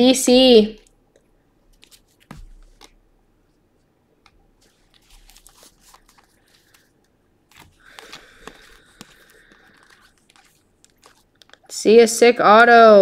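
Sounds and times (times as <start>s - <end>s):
cards flicking and rustling: 1.6s - 3.0s, 4.2s - 11.8s.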